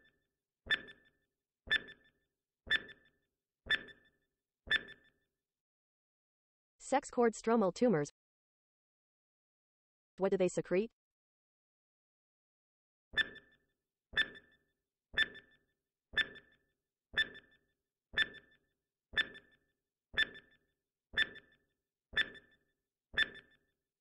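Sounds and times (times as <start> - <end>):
timer ticks with ringing tone: 0.0 - 5.2, 13.2 - 23.7.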